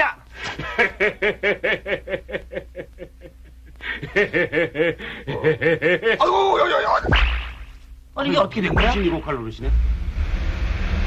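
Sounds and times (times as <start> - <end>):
man laughing: 0.4 - 6.9.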